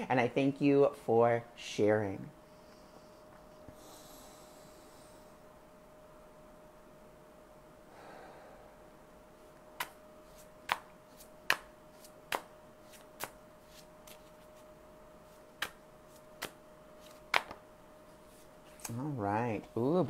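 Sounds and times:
faint hum: 0:00.0 - 0:20.0
cards slapping while shuffled: 0:09.8 - 0:14.7, 0:15.3 - 0:17.6.

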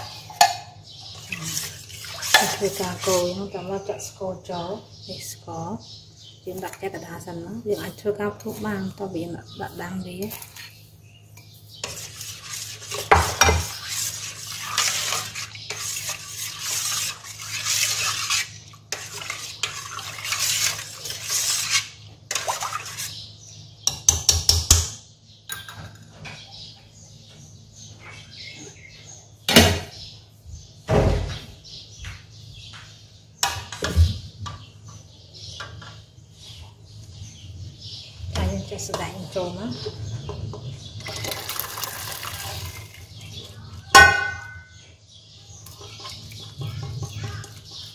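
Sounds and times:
metal spoon scraping a pot: 0:00.0 - 0:03.6, 0:09.7 - 0:23.3, 0:39.8 - 0:44.7, 0:45.5 - 0:47.9.

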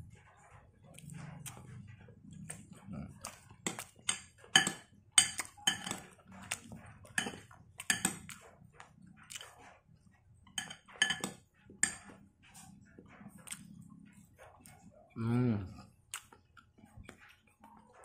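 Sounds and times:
metal spoon clinking on ceramic bowl: 0:03.6 - 0:06.1, 0:07.1 - 0:08.2, 0:10.5 - 0:12.2.

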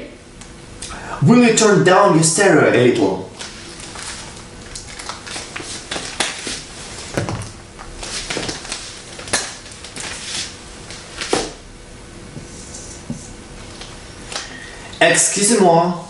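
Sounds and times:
handling noise: 0:03.4 - 0:11.6.

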